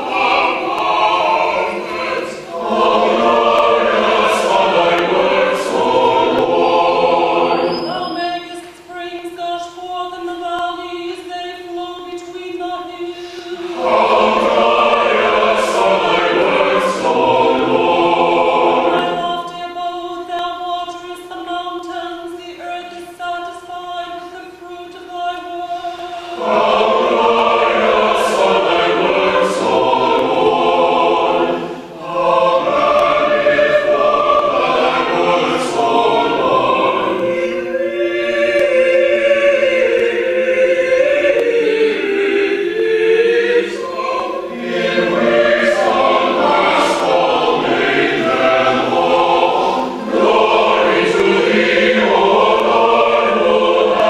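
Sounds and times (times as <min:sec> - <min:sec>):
choir singing a slow chant: 0:00.0 - 0:54.0.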